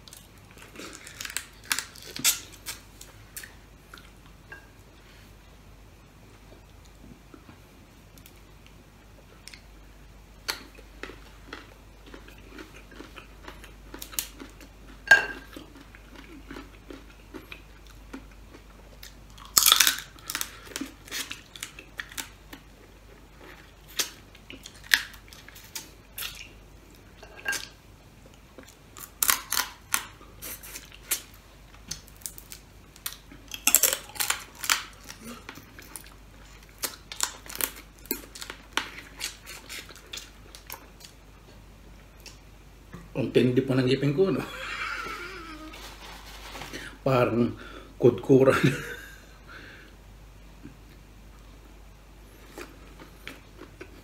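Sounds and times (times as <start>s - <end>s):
crab shells cracking and crunching: 0.1s - 2.8s, 19.0s - 22.6s, 23.4s - 26.5s, 29.0s - 30.2s, 31.9s - 41.2s
chewing: 10.5s - 26.6s.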